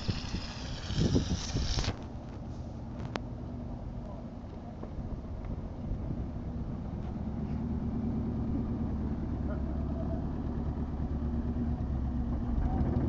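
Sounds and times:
van engine driving past: 0:06.0 - 0:13.0.

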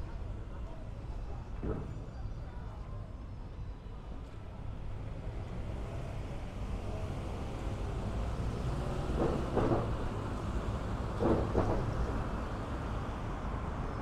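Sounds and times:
passing vehicles rumbling: 0:04.5 - 0:14.0.

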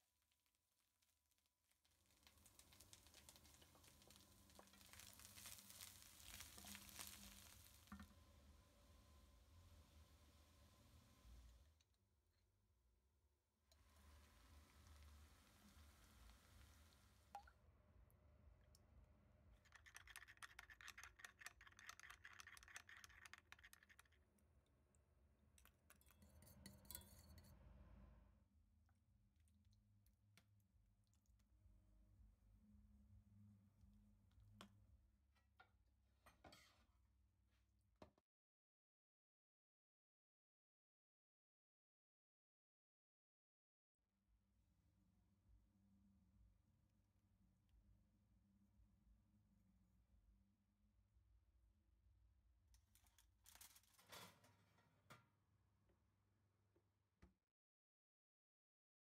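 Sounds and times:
vegetables sizzling in a pan: 0:02.6 - 0:07.9, 0:14.0 - 0:17.3.

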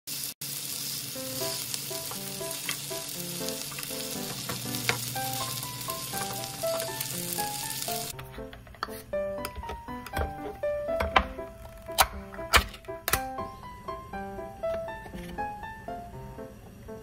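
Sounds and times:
patties sizzling in oil: 0:00.1 - 0:08.2
soft simple melody: 0:01.2 - 0:17.0
spatula scraping and tapping pan: 0:08.1 - 0:11.2.

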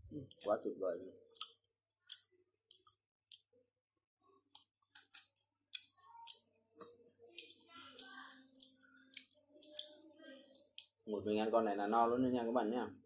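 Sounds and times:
mouth chewing: 0:01.2 - 0:03.5, 0:04.4 - 0:11.0
fingers clicking on crab shell: 0:04.5 - 0:09.9.

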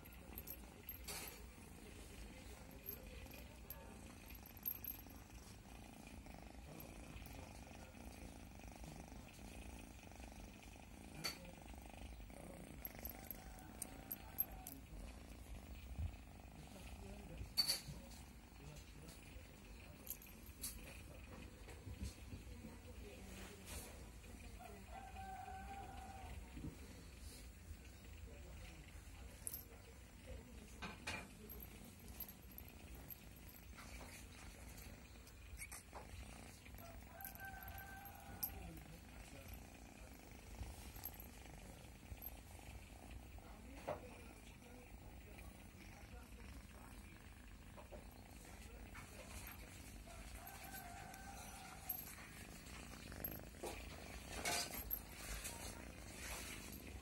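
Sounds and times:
cat purring: 0:00.0 - 0:57.0.

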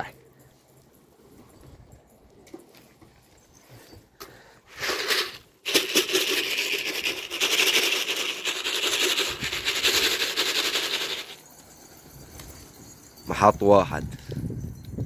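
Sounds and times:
pigeon wings flapping: 0:04.8 - 0:11.4.

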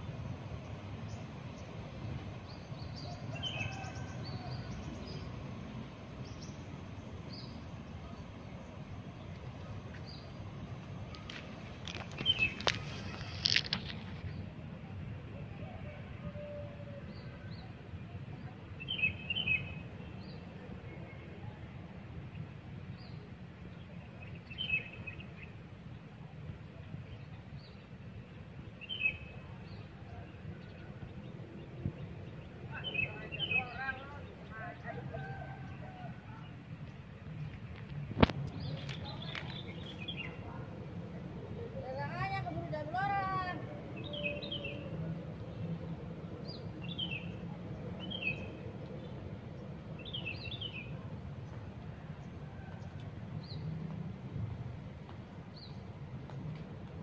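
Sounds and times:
small birds chirping: 0:36.5 - 0:40.8.

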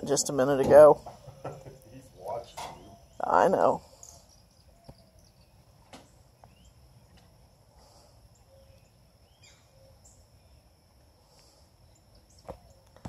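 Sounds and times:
high insect hum: 0:00.0 - 0:13.0
bird chirps: 0:00.9 - 0:07.3, 0:08.3 - 0:10.7.

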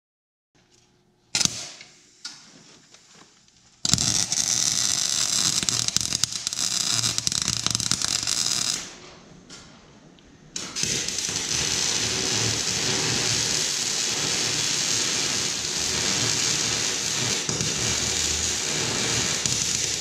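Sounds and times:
welder arc crackling: 0:03.8 - 0:09.0, 0:10.6 - 0:20.0.

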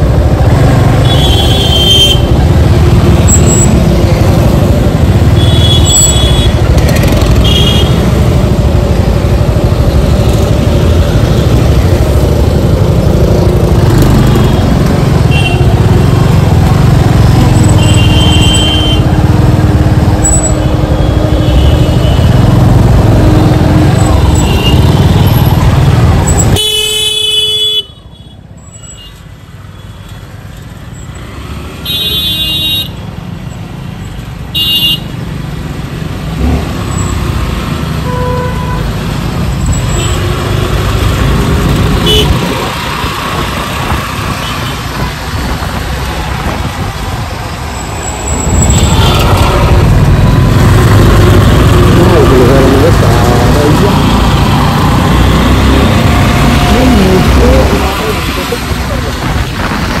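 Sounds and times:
traffic rumble: 0:00.0 - 1:00.0
vehicle horns honking: 0:00.9 - 0:02.5, 0:05.3 - 0:08.1, 0:14.1 - 0:15.9, 0:17.6 - 0:19.2, 0:26.3 - 0:29.2, 0:31.8 - 0:33.0, 0:34.5 - 0:35.1, 0:38.0 - 0:39.0, 0:39.8 - 0:40.7, 0:42.0 - 0:42.6, 0:48.5 - 0:58.3.

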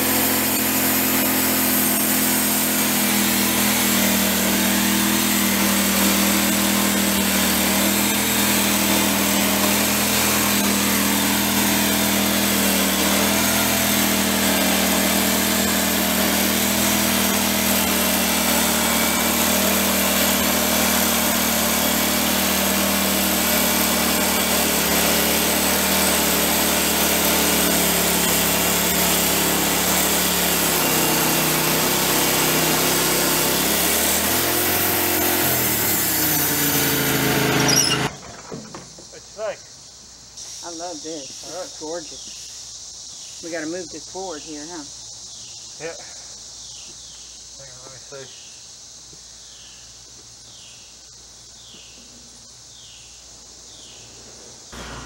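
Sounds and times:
saw blade cutting into wood: 0:00.0 - 0:38.3, 0:54.8 - 0:55.0
band sawmill engine droning: 0:00.0 - 0:39.6, 0:54.4 - 0:55.0.

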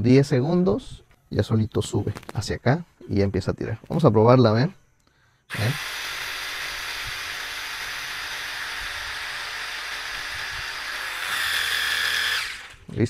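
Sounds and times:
electric pump whine: 0:05.5 - 0:13.0.

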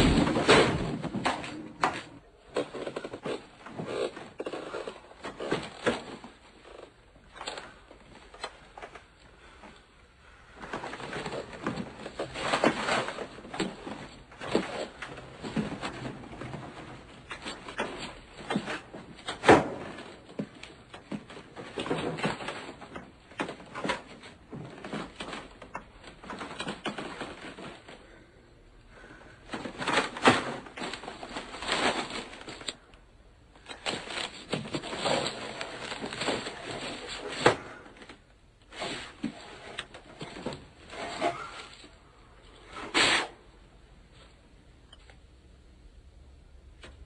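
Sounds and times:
boxes knocking: 0:00.0 - 0:03.5
gift wrapping rustling: 0:00.0 - 0:28.2, 0:29.0 - 0:32.9, 0:33.5 - 0:43.3.

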